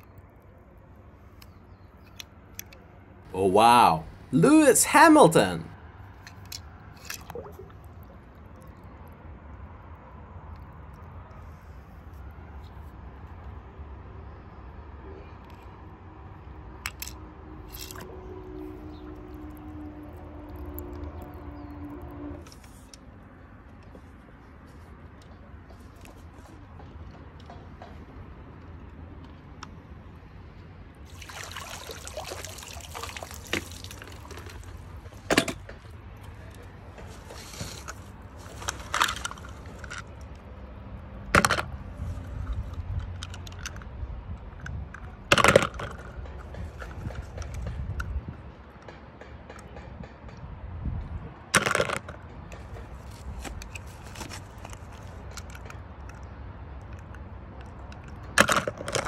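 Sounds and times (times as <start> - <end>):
water pouring and dripping: 6.5 - 8.8, 31.1 - 36.0
toy cars clicking: 16.8 - 18.1, 33.5 - 40.5, 42.5 - 43.9, 51.6 - 59.0
water splashing: 31.1 - 35.0
net rustling: 37.1 - 39.8.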